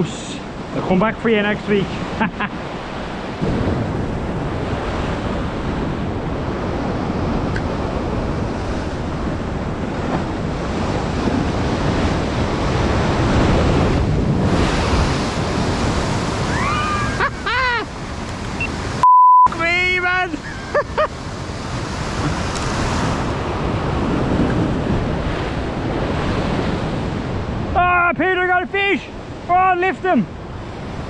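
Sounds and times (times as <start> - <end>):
sea surf washing: 0.0 - 31.0
wind on microphone: 2.9 - 19.0, 20.4 - 27.8.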